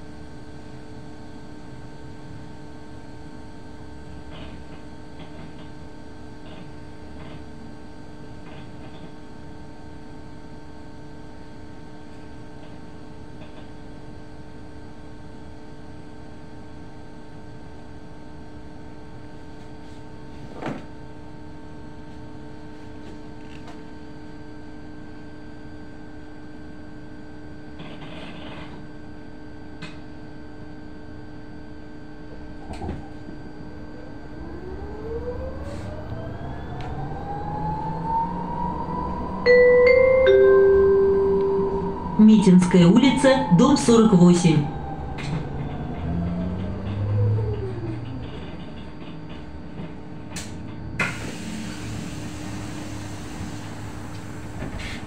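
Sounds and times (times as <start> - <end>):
electrical hum: 32.3 - 55.0.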